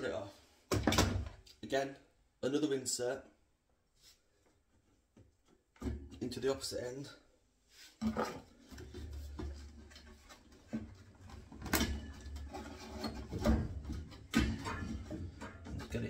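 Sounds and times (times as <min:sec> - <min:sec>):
plastic pipe knocking against wood: 0:13.2 - 0:15.8.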